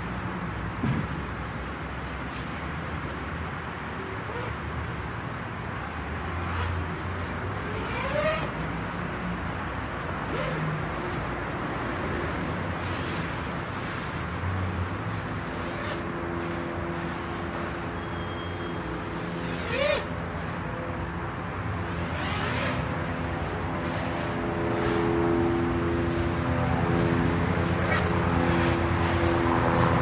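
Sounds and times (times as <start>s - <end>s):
traffic rumble: 0.0s - 30.0s.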